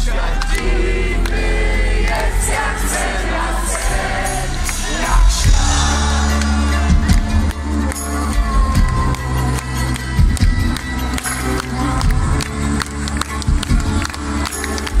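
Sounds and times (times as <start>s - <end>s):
crowd singing along: 0.0s - 8.8s
live band music with heavy bass: 0.0s - 15.0s.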